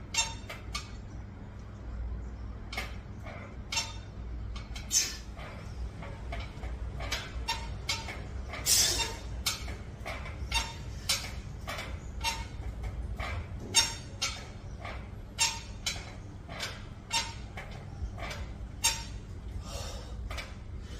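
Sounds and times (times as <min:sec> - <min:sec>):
steady low hum: 0:00.0 - 0:20.9
man breathing forcefully: 0:19.6 - 0:20.2.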